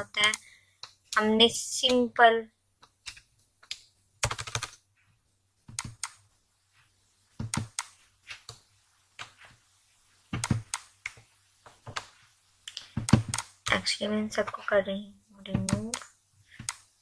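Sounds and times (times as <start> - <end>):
typing on computer keyboard: 4.2 - 4.8.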